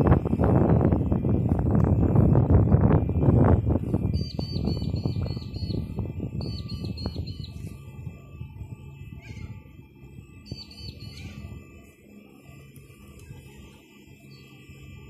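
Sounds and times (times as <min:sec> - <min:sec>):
low rumble: 0:00.0 - 0:11.6
bird singing high notes: 0:04.0 - 0:07.8, 0:10.4 - 0:11.6, 0:14.2 - 0:14.6.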